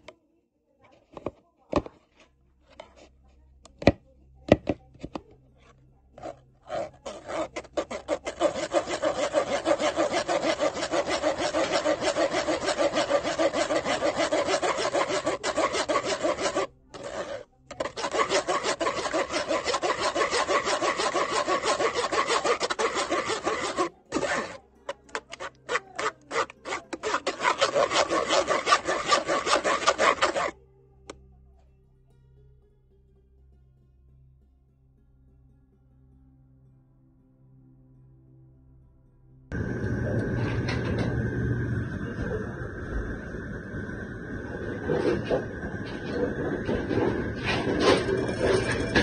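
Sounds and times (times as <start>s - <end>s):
spoon scraping mesh strainer: 6.2s - 30.5s, 44.5s - 49.0s.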